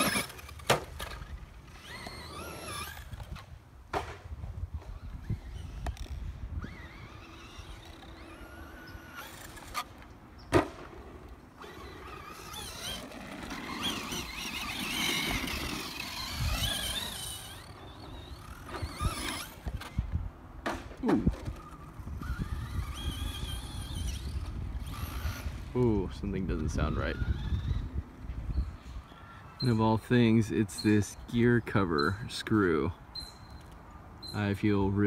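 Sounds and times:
electric motor whining: 0.0s - 3.4s, 4.9s - 10.0s, 11.6s - 20.1s, 21.2s - 28.1s.

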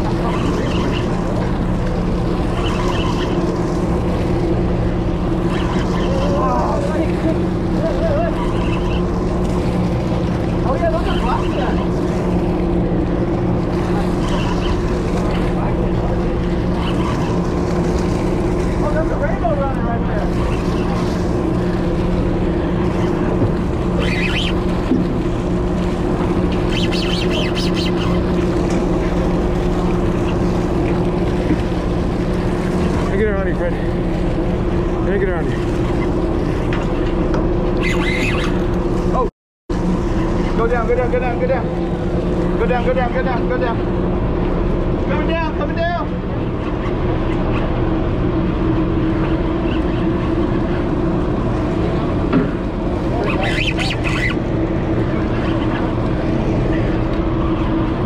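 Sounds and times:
boat engine droning: 0.0s - 58.0s
high chirps: 24.0s - 24.6s, 26.6s - 28.2s.

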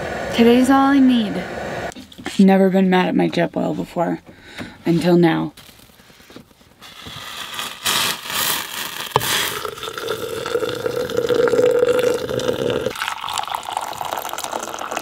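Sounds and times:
gas hissing: 0.0s - 2.0s, 7.0s - 13.0s
camp stove burner humming: 9.2s - 15.0s.

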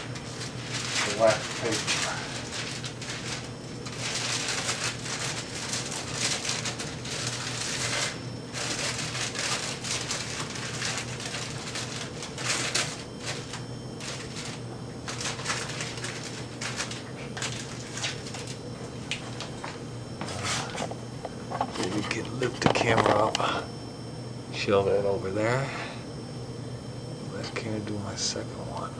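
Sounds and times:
wax paper crinkling: 0.0s - 23.3s.

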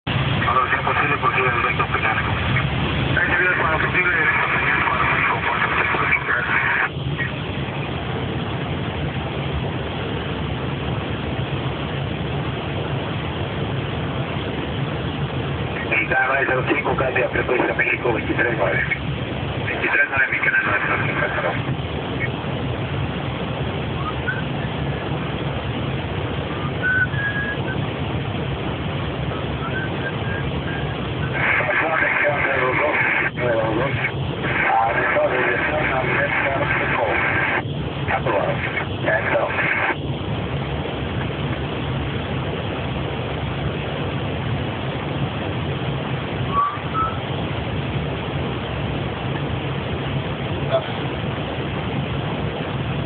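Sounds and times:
cockpit air rush and drone: 0.0s - 53.0s
low hum: 0.0s - 53.0s
faint whistling tones: 24.0s - 24.7s, 26.5s - 27.8s, 29.3s - 31.0s, 46.5s - 47.2s
short electronic tones: 26.6s - 27.8s, 46.5s - 47.2s.

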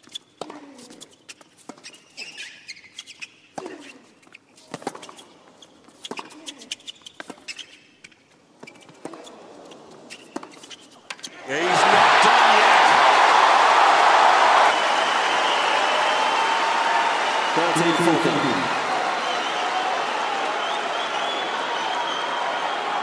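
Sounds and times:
shoes squeaking on court: 0.0s - 11.4s
tennis racket hitting ball: 8.7s - 9.3s.

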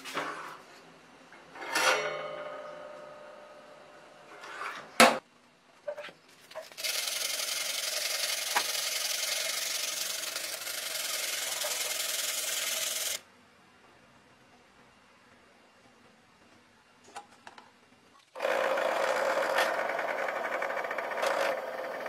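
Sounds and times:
sandpaper rubbing a knife blade: 6.8s - 13.2s.

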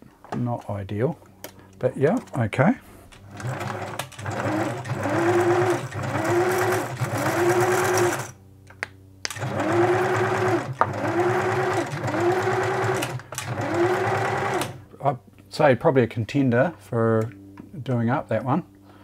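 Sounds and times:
sewing machine motor whine: 3.1s - 8.4s, 9.3s - 14.8s.

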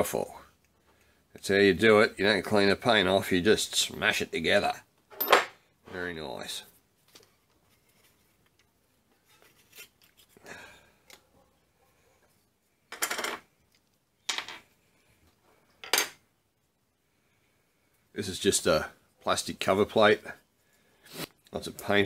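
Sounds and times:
parts clattering on a bench: 5.1s - 5.6s, 12.9s - 13.5s, 14.2s - 14.7s, 15.8s - 16.2s.

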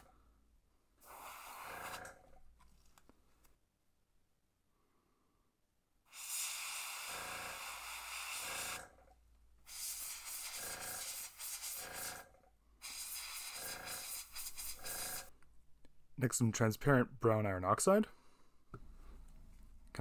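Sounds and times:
airbrush hissing air: 1.0s - 2.0s, 6.1s - 8.8s, 9.7s - 12.2s, 12.8s - 15.3s.

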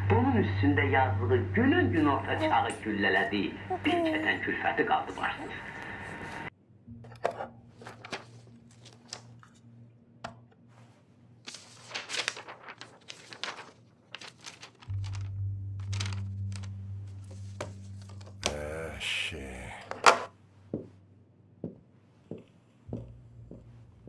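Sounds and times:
paper rustling: 7.8s - 9.7s, 10.8s - 18.8s
low hum: 11.9s - 13.7s, 14.5s - 21.4s.

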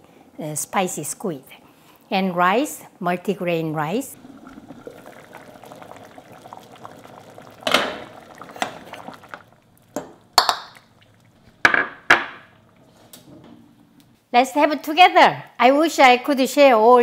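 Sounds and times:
soup simmering in a pot: 4.1s - 13.0s
ladle clinking: 4.2s - 12.6s
ladle pouring soup: 4.2s - 12.9s.

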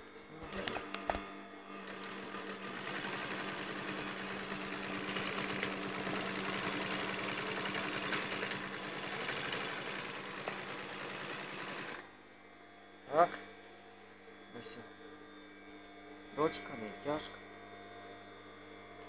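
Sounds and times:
sewing machine stitching: 1.8s - 12.0s.

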